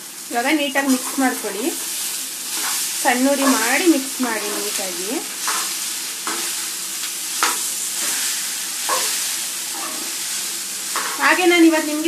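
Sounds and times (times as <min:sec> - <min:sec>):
rice sizzling in oil: 0:00.0 - 0:12.0
metal spatula scraping a pan: 0:02.5 - 0:06.7, 0:10.9 - 0:11.3.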